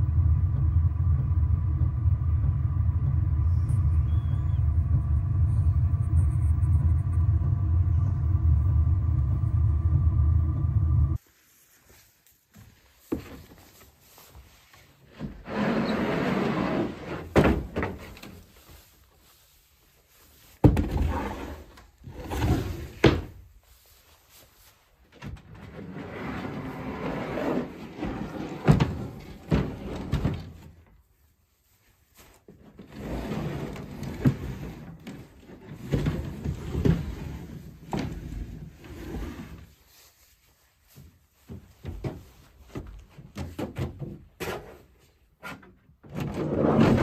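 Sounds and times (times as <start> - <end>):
wood scraping along truck bed: 15.0 - 18.5, 20.7 - 23.4, 25.5 - 30.8, 32.6 - 39.8, 46.2 - 47.0
wooden panels knocking and thudding: 17.3 - 18.4, 20.6 - 21.1.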